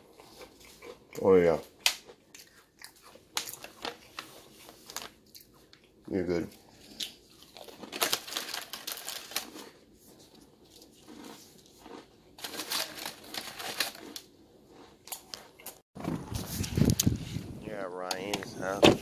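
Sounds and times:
plastic packaging crinkling: 7.5 - 9.8, 12.4 - 14.3.

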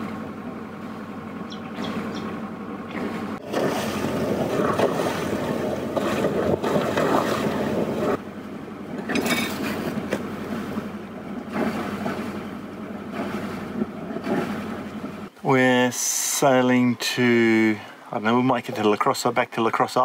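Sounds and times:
water rushing: 0.0 - 8.2, 8.8 - 20.0
steady low hum: 0.0 - 20.0
wind buffeting microphone: 1.4 - 8.2.

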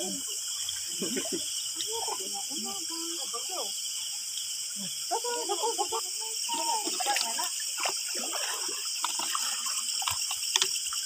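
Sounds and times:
water splashing from wading: 0.0 - 11.0.

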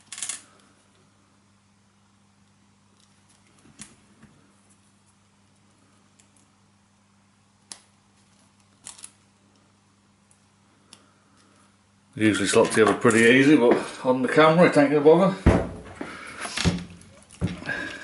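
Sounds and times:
small metal parts clicking: 0.0 - 0.6, 8.8 - 9.2.

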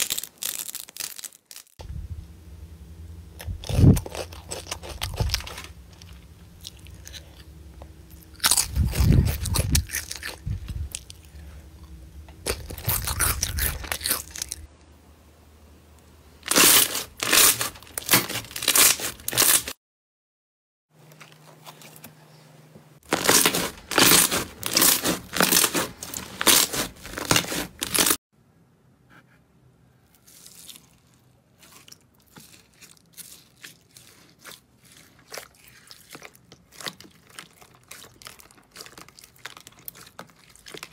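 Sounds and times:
slime crackling and popping: 0.0 - 1.8, 16.4 - 19.7, 23.1 - 28.2, 30.3 - 40.9.

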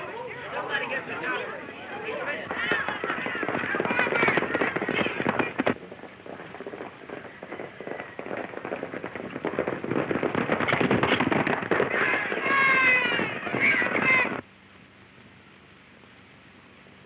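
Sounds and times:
horses galloping: 0.0 - 14.4
rapid gunshots: 2.5 - 14.4.

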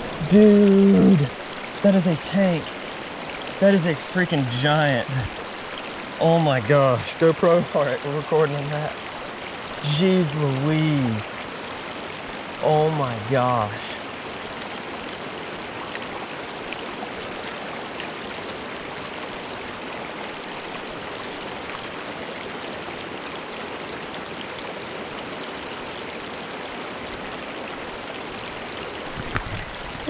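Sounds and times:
river rushing over rocks: 0.0 - 13.2.

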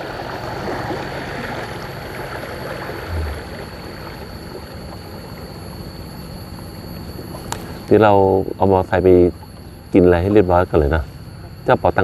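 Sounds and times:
river water rushing: 0.0 - 5.5.

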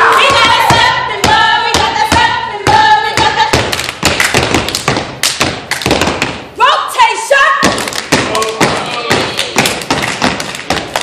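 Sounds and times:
voices chanting: 0.0 - 3.7
hands clapping and slapping: 3.6 - 6.4, 7.6 - 11.0.

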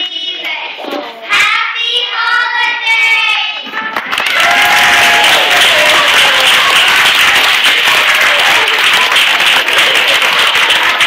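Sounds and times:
audience applauding: 4.0 - 11.0.

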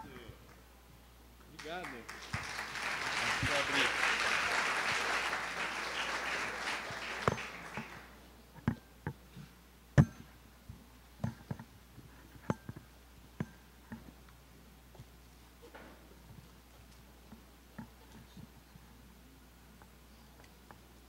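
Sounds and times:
audience applause: 1.6 - 8.2.

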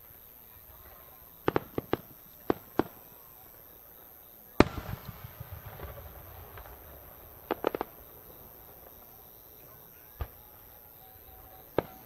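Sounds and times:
firework shells bursting: 4.6 - 8.4.

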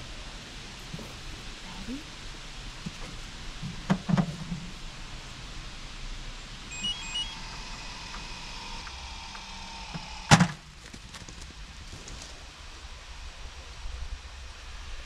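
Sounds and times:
motor whining: 6.6 - 10.6
electronic beeps: 6.7 - 9.8.

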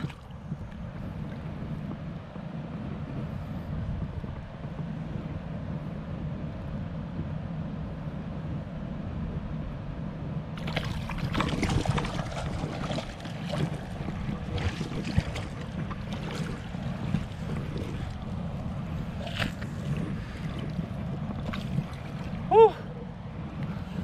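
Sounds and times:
water splashing: 0.0 - 0.8, 10.6 - 22.8
stream rumble: 0.0 - 24.0
wind: 0.0 - 24.0.

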